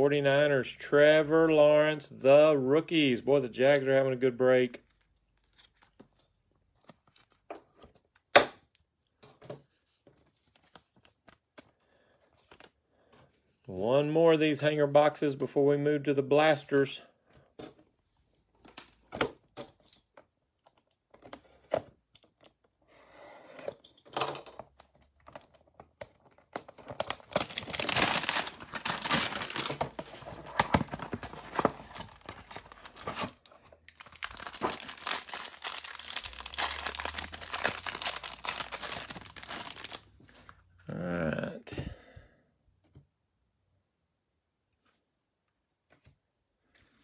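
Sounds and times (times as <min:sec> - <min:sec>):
plastic wrap crinkling: 0:26.2 - 0:40.0
cardboard box tearing: 0:27.3 - 0:33.4.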